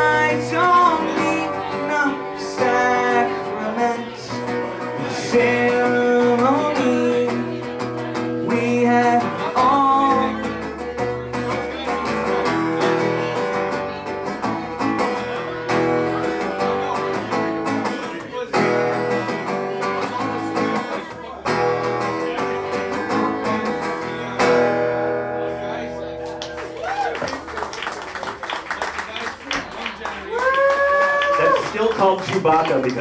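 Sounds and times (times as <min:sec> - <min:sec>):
man singing: 0:00.0 - 0:14.0
acoustic guitar strumming: 0:00.0 - 0:26.8.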